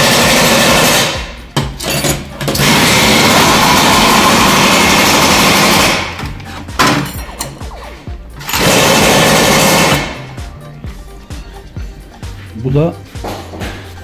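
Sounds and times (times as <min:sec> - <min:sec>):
power tool undoing bolts: 0:00.0 - 0:07.7, 0:08.4 - 0:10.3.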